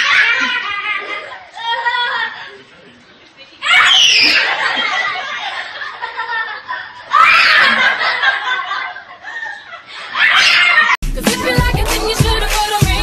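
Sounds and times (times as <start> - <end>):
young children laughing: 0.0 - 2.8, 3.6 - 11.0.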